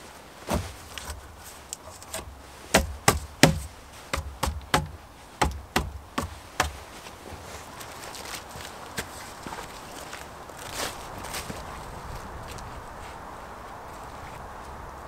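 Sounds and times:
wooden poles knocking: 2.0 - 7.5.

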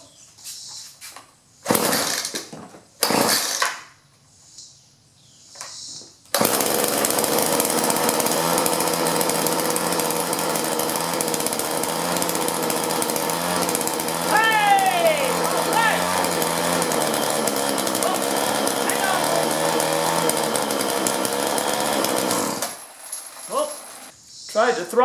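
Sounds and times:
recoil starter cord pulls: 6.3 - 22.8
small two-stroke engine running: 6.4 - 22.8.

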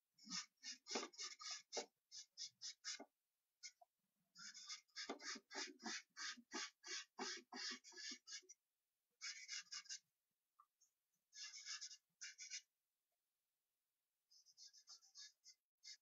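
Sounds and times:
charcoal scratching on paper: 0.2 - 3.0, 4.4 - 8.5, 9.2 - 10.0, 11.4 - 12.7, 14.4 - 16.0.

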